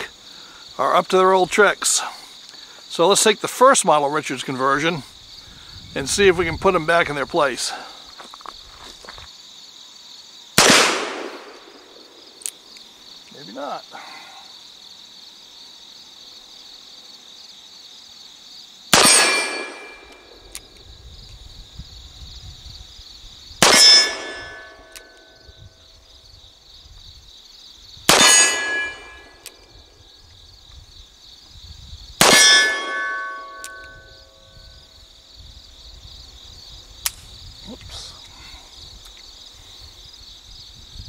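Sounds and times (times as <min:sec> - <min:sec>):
insect chorus: 0:00.0 - 0:41.0
bullets ringing on steel targets: 0:19.0 - 0:20.1, 0:23.6 - 0:25.0, 0:28.1 - 0:29.4, 0:32.2 - 0:34.1.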